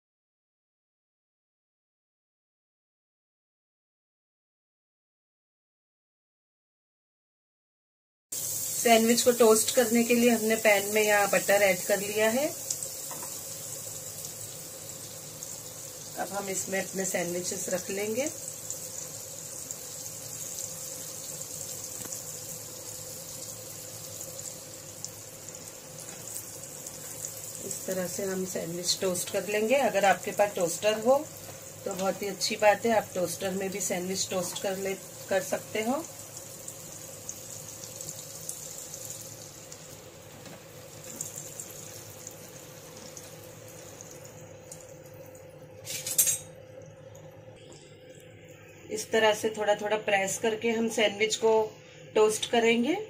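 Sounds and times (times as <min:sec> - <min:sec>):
butter sizzling in a pan: 0:08.3 - 0:47.4
faint steady hum: 0:08.4 - 0:53.0.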